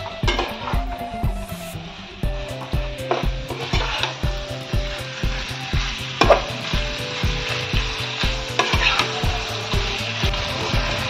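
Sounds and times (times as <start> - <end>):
background music with steady beat: 0.0 - 11.0
chicken sizzling in a frying pan: 0.0 - 11.0
spatula scraping a pan: 3.0 - 11.0.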